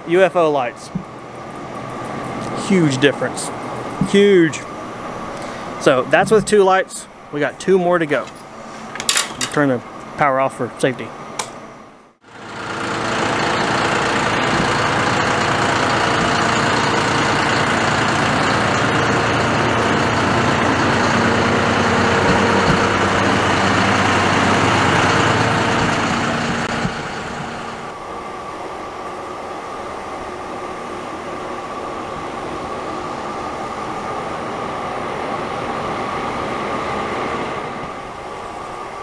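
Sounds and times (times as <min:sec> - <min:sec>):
tractor engine idling: 0:12.2 - 0:28.0.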